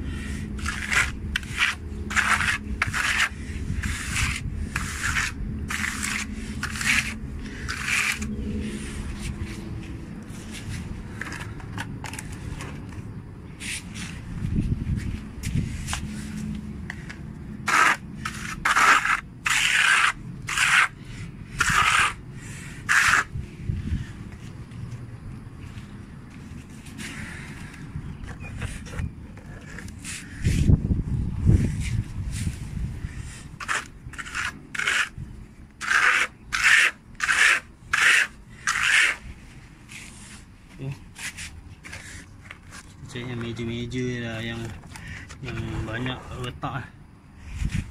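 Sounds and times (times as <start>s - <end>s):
scraping on gritty concrete: 0.0s - 25.0s, 25.6s - 47.9s
trowel spreading wet plaster: 0.2s - 9.3s, 17.7s - 22.2s, 22.8s - 23.3s, 33.6s - 35.2s, 35.8s - 39.2s.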